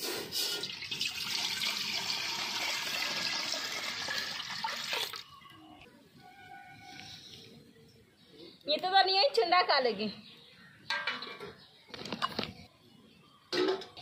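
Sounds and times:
water pouring into metal pot: 0.6 - 5.3.

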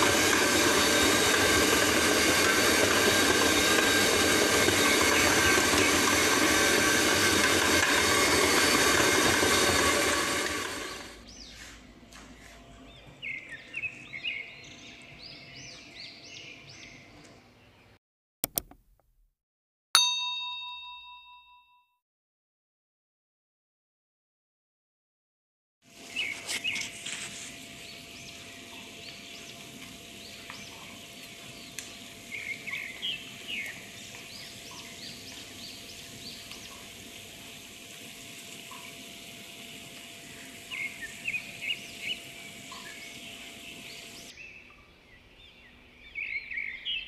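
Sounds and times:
donuts sizzling in hot oil: 27.5 - 43.7.

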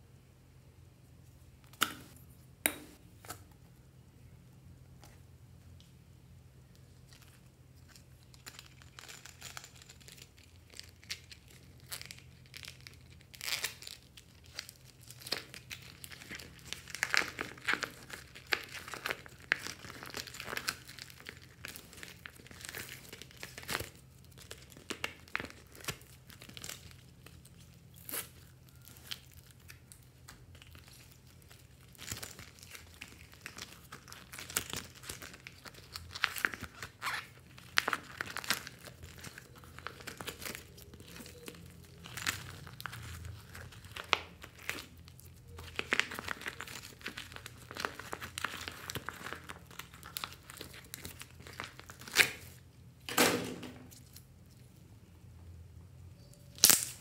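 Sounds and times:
plastic pouches crinkling: 7.0 - 52.7.

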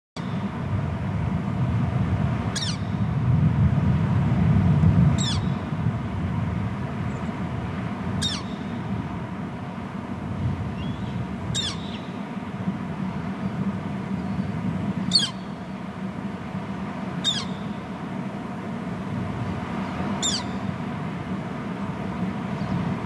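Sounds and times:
steady low rumble: 0.2 - 23.0
eagle calling high whistles: 2.6 - 2.9, 8.2 - 8.6, 11.6 - 12.0, 15.1 - 15.4, 17.2 - 17.6.

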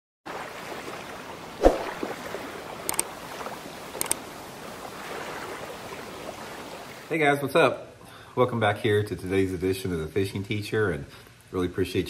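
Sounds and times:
water-like rushing: 0.3 - 7.1.

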